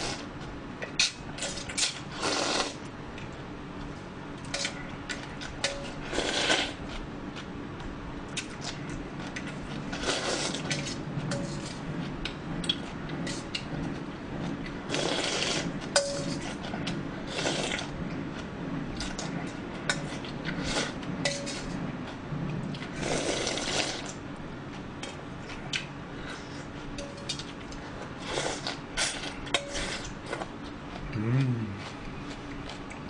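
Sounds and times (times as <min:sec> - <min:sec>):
person slurping broth: 0:02.1 - 0:02.8, 0:06.1 - 0:06.8, 0:10.0 - 0:10.9, 0:14.9 - 0:15.7, 0:17.3 - 0:17.9, 0:23.0 - 0:24.1.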